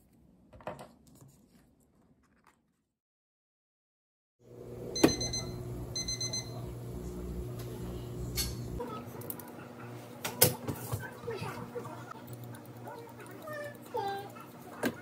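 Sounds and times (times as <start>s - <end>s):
cooktop beeping: 4.5s - 9.1s
low electrical hum: 4.5s - 9.4s.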